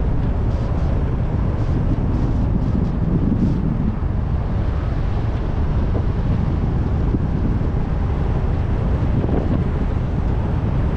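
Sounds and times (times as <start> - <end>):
car road noise: 0.0 - 10.9
wind noise: 0.0 - 10.9.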